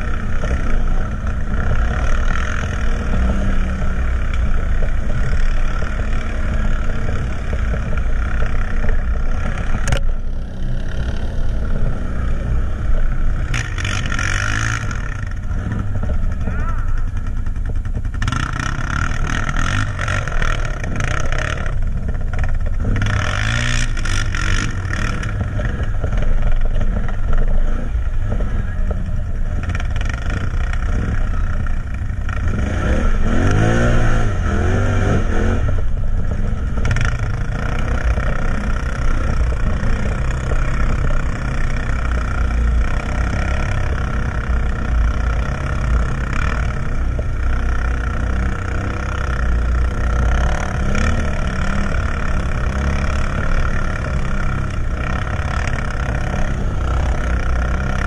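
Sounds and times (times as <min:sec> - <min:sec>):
quad engine revving: 0:00.0 - 0:58.0.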